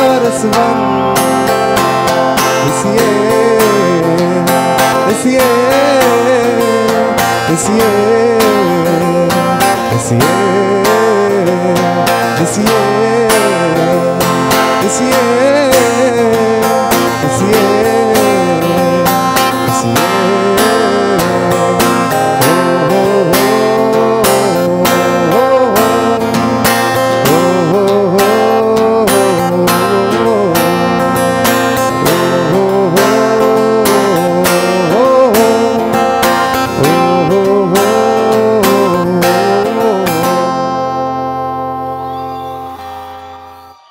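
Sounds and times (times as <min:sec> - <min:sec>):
acoustic guitar strumming: 0:00.0 - 0:43.9
person singing: 0:00.0 - 0:43.9.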